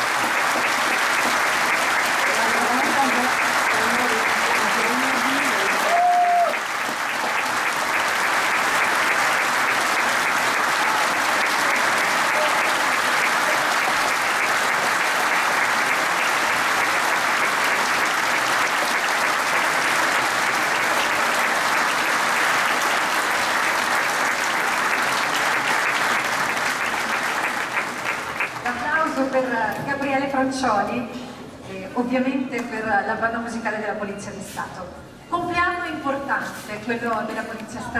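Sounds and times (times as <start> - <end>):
audience applause: 0.0 - 29.2.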